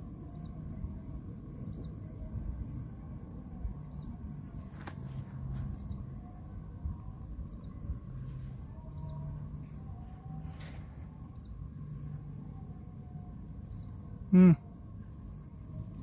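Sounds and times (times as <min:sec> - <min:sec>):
low background rumble: 0:00.0 - 0:16.0
small bird chirping: 0:00.2 - 0:00.6, 0:01.6 - 0:02.0, 0:03.8 - 0:04.2, 0:05.4 - 0:06.4, 0:07.4 - 0:07.8, 0:08.8 - 0:09.4, 0:11.2 - 0:11.6, 0:13.6 - 0:14.0.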